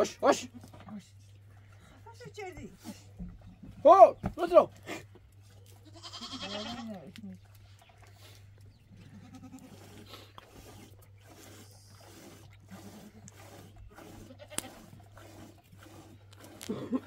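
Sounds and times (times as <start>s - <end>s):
goats bleating: 5.7s - 7.2s, 9.0s - 9.8s, 14.1s - 14.9s.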